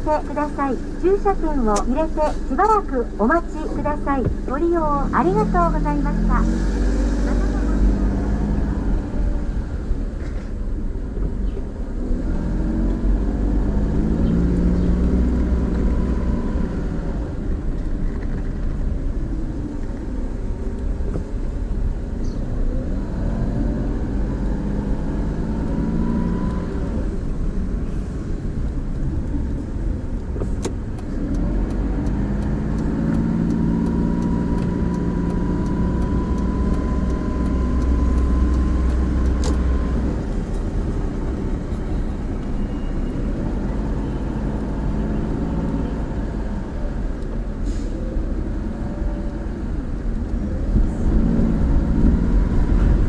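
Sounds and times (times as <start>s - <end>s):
car engine accelerating: 0.0s - 53.0s
road rumble: 0.0s - 53.0s
regular ticking: 30.9s - 40.7s.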